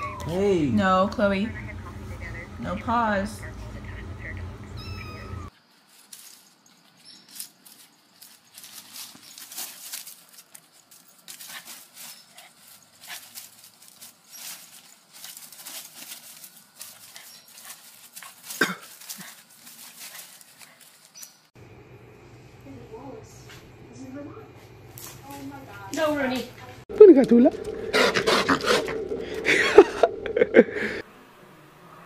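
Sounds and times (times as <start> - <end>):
leaves rustling and crackling: 5.5 - 21.6.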